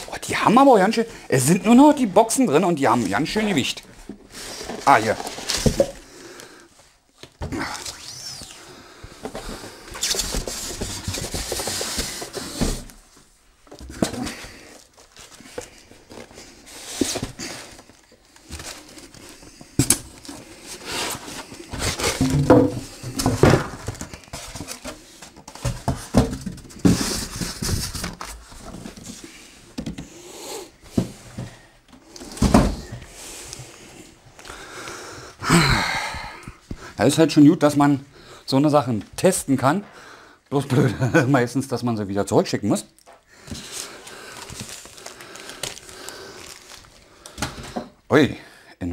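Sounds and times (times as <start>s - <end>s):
cardboard scraping and rustling: 9.3s - 13.0s, 20.2s - 29.5s
knocks and bumps: 22.2s - 24.1s.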